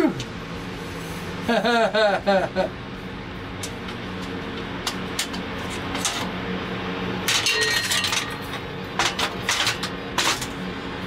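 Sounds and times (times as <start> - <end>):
steady low hum: 0.0 - 11.0
metal clinking: 7.3 - 10.5.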